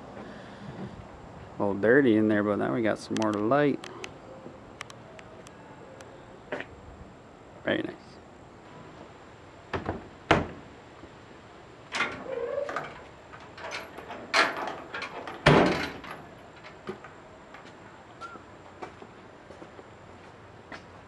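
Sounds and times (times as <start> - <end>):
camper door knocks and thumps: 9.7 - 10.6.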